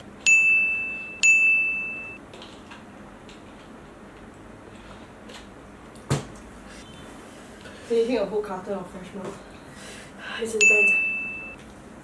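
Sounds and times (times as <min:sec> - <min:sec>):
bell-like ding: 0:00.3 - 0:02.2, 0:10.6 - 0:11.6.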